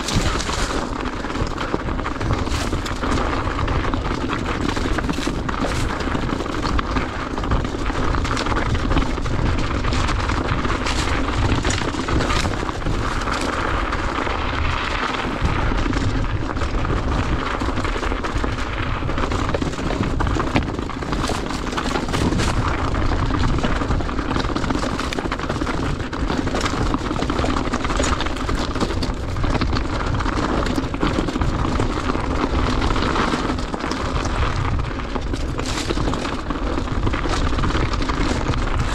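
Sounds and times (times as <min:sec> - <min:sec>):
tyres knocking over stones: 0:00.0 - 0:06.0
bike rattling: 0:00.0 - 0:38.9
wind buffeting microphone: 0:00.0 - 0:38.9.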